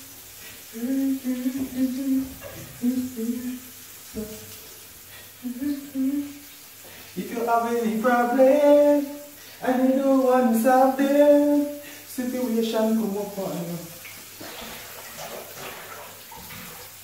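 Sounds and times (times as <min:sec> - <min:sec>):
person humming a slow tune: 0:00.7 - 0:04.6, 0:05.4 - 0:06.5.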